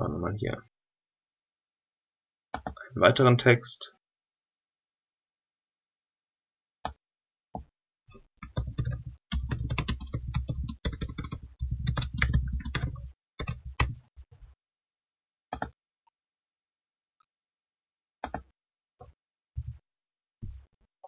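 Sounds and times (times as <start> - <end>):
typing on a computer keyboard: 8.4 - 14.0.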